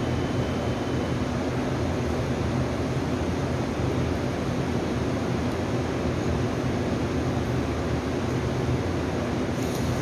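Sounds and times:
train equipment humming: 0.0 - 10.0.

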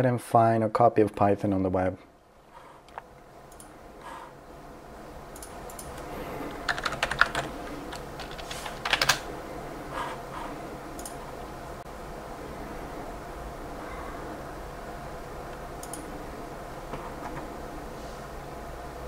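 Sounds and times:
computer keyboard typing: 5.3 - 9.3.

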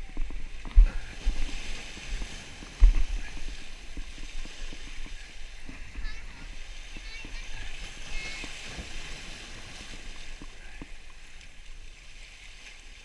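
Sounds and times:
wind buffeting microphone: 0.0 - 11.3
surf breaking on rocks: 0.0 - 13.0.

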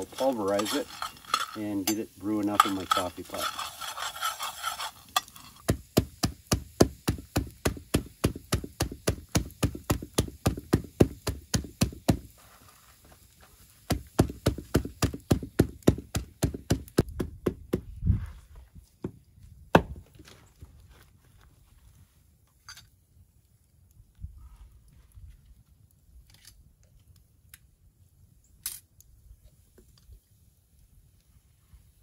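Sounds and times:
coffee beans rattling in tin pan: 0.0 - 5.7
dull knocks of pounding on wood: 5.7 - 12.3, 13.9 - 17.9, 19.0 - 20.1.

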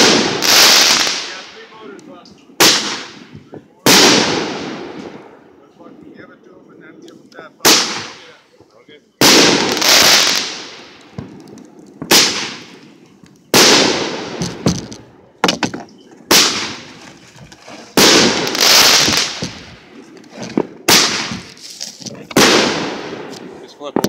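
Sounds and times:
loud firework bangs: 0.0 - 1.8, 2.6 - 5.4, 7.6 - 8.4, 9.2 - 12.9, 13.5 - 17.0, 17.9 - 24.0.

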